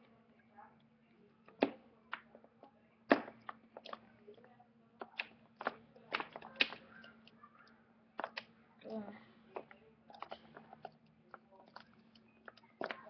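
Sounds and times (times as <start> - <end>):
plastic figures knocking on wooden floor: 5.0 - 7.3.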